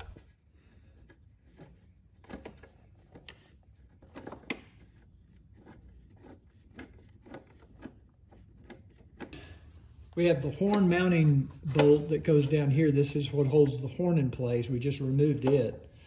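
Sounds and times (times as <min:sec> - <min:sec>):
light scrapes of bolt turning: 0:00.0 - 0:11.9.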